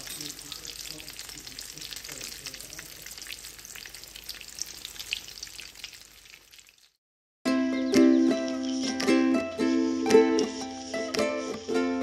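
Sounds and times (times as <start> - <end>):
food sizzling in oil: 0.0 - 7.0, 9.7 - 12.0
music: 7.5 - 12.0.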